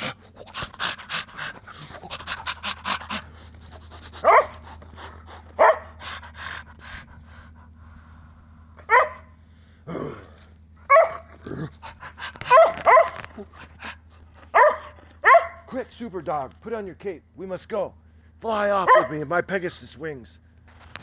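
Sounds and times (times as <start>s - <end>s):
man panting: 0.0s - 8.7s.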